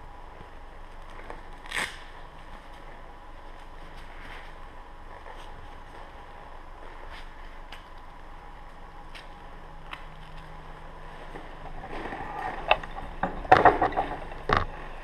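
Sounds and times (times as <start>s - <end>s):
faint steady hum: 0.0s - 15.0s
gloves rustling: 0.3s - 13.2s.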